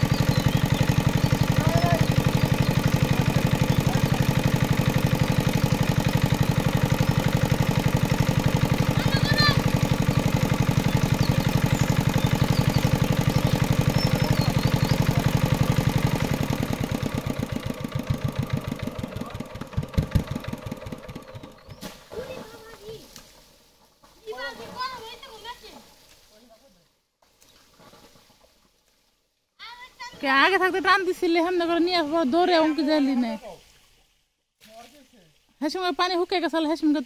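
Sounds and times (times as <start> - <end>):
water pump engine chugging: 0.0 - 23.6.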